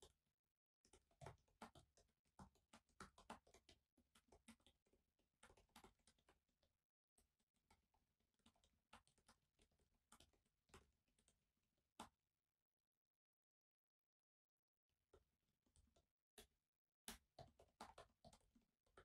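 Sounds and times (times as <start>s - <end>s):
typing on laptop keyboard: 0.8s - 11.4s, 15.7s - 19.0s.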